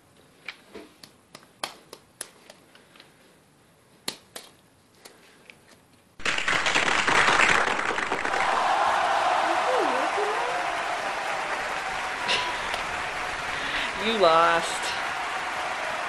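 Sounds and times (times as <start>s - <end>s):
applause: 6.2s - 16.0s.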